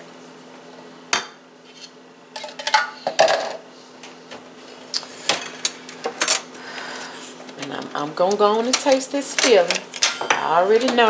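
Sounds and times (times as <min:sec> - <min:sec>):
kitchenware clinking and clattering: 0:01.2 - 0:03.6, 0:07.6 - 0:11.0.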